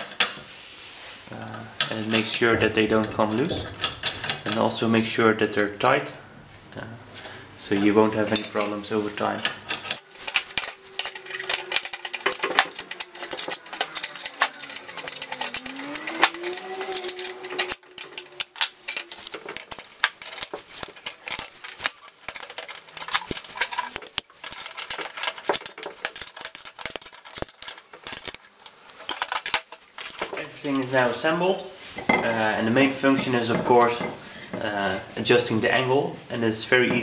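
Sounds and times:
tools clinking on steel: 0:08.3 - 0:31.1.

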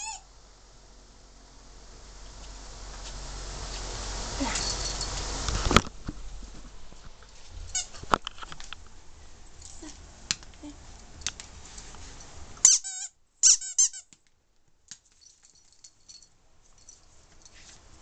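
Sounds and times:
squeaky toy squeaking: 0:00.0 - 0:00.2, 0:07.7 - 0:08.0, 0:12.6 - 0:14.1.

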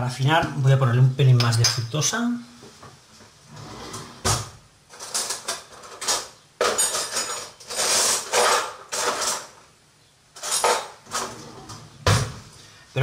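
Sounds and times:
kitchen utensils clinking and knocking: 0:04.9 - 0:09.6, 0:10.4 - 0:12.3.

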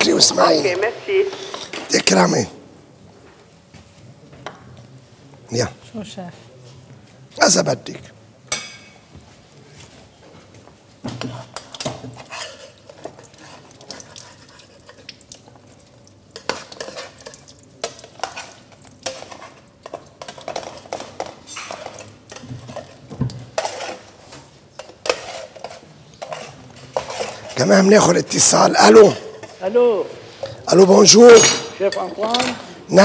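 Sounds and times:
metal utensil scraping a pan: 0:11.2 - 0:15.1, 0:16.3 - 0:29.7.

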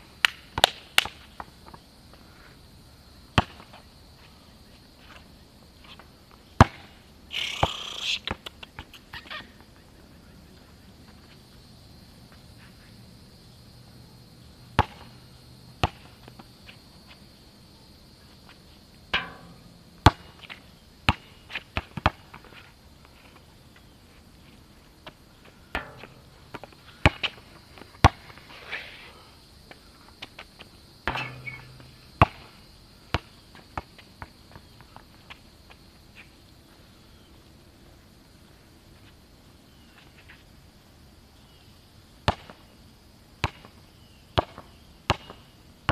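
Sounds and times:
basketball bouncing on asphalt: 0:03.4 - 0:03.8, 0:06.6 - 0:07.0, 0:14.8 - 0:15.2, 0:15.8 - 0:16.6, 0:19.2 - 0:22.4, 0:25.0 - 0:28.4, 0:30.4 - 0:35.1, 0:42.3 - 0:42.6, 0:43.4 - 0:43.7, 0:44.4 - 0:45.4
insect chirring: 0:05.8 - 0:10.4, 0:11.0 - 0:37.3
ball hitting hoop with ring: 0:19.1 - 0:20.4, 0:25.8 - 0:27.2, 0:31.1 - 0:32.5.

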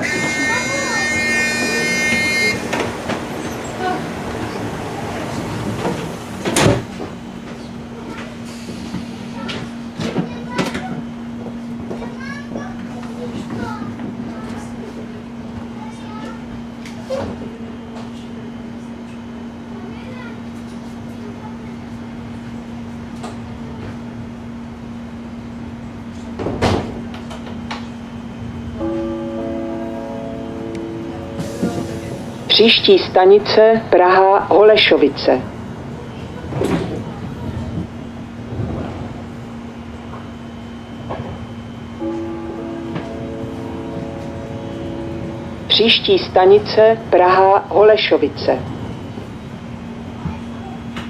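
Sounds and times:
train equipment humming: 0:00.0 - 0:51.0
sliding door shutting with a thud: 0:06.4 - 0:07.0, 0:26.4 - 0:27.0.

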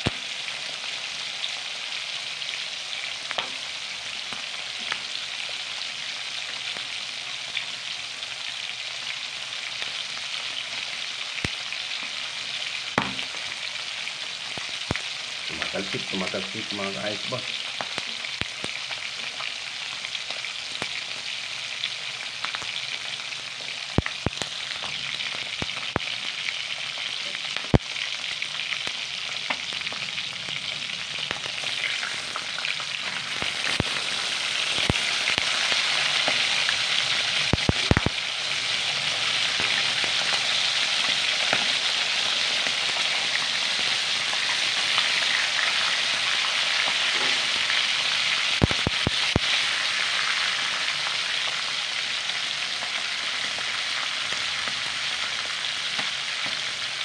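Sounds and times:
meat sizzling in oil: 0:00.0 - 0:57.0.

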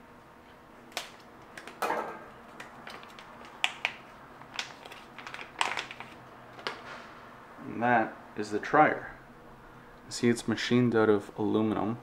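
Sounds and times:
plastic packet crinkling: 0:02.5 - 0:06.8.

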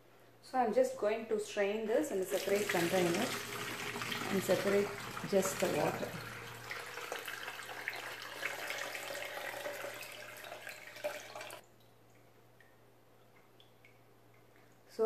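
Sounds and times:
liquid pouring through a strainer: 0:02.3 - 0:11.6.

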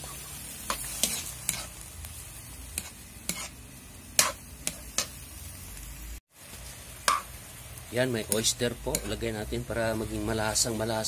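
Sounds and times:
metal spatula scraping a wok: 0:00.0 - 0:01.9, 0:02.6 - 0:05.3
food sizzling: 0:00.0 - 0:11.0.

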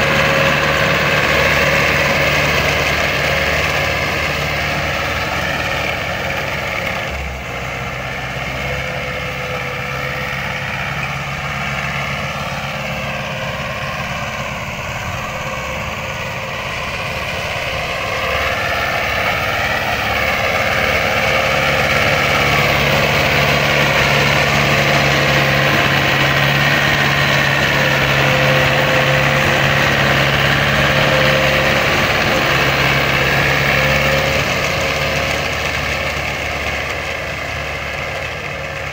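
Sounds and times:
tractor diesel engine under load: 0:00.0 - 0:38.9.

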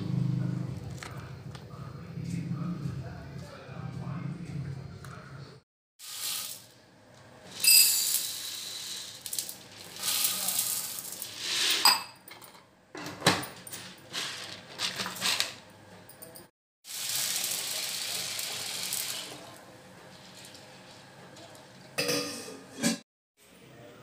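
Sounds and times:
dry grains rattling into metal pot: 0:06.0 - 0:06.7, 0:07.5 - 0:11.8
water pouring into pot: 0:06.0 - 0:06.8, 0:07.5 - 0:11.5, 0:16.9 - 0:21.9.

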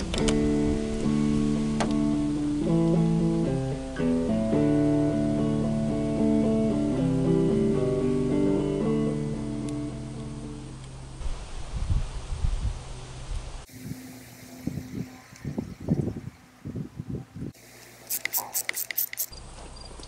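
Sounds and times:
guitar chords: 0:00.0 - 0:11.2.

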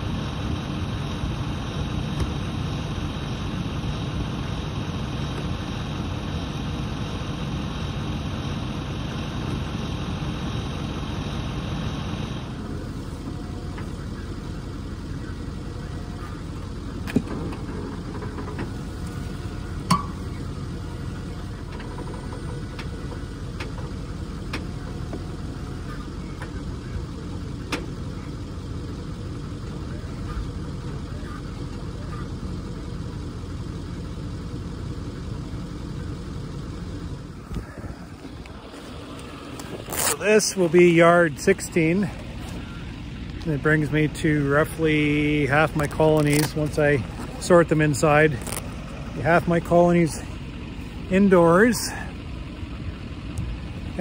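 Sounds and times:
loader engine running: 0:00.0 - 0:54.0.

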